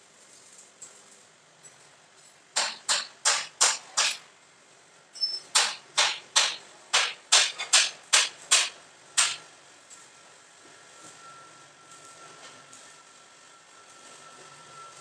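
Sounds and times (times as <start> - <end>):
sharp knocks: 2.6 - 4.2, 5.6 - 9.4.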